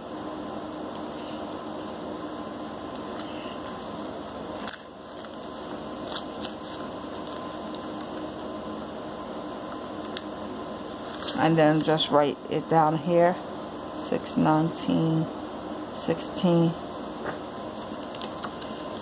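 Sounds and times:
room noise hiss and hum: 0.0 - 19.0
paper rustling and clicks: 4.6 - 8.5, 17.2 - 19.0.

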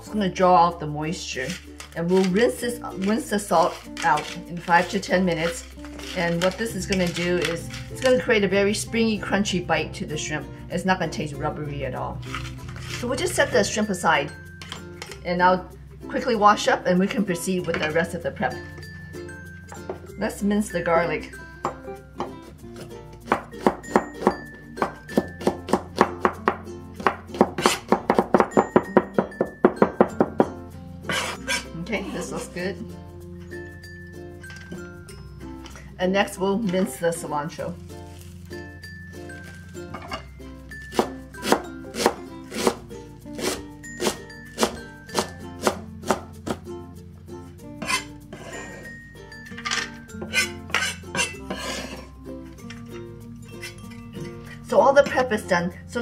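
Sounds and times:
cleaver chopping on cutting board: 23.3 - 30.5, 40.9 - 42.8, 43.4 - 46.6.

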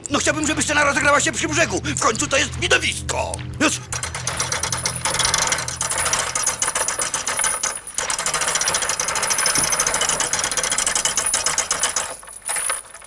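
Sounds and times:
fast rattle of clicks: 3.9 - 13.0.

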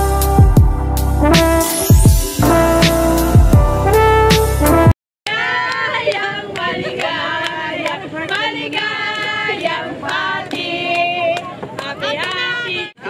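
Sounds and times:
women singing together: 5.3 - 13.0
people clapping: 5.4 - 12.8.

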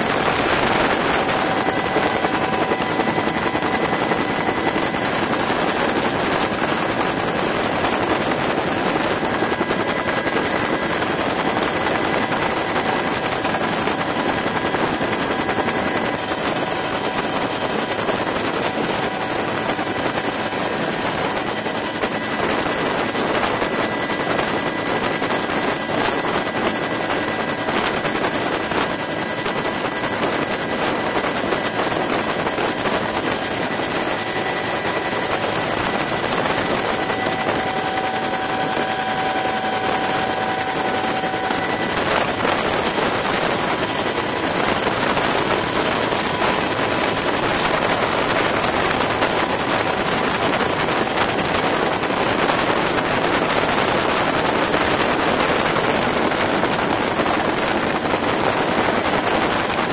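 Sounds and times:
helicopter rotor and turbine noise: 0.0 - 59.9
faint high whine: 31.9 - 47.7.

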